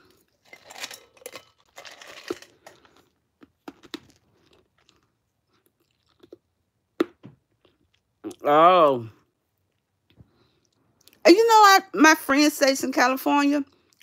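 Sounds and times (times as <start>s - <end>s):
person crunching ice cubes: 0.4s - 5.1s.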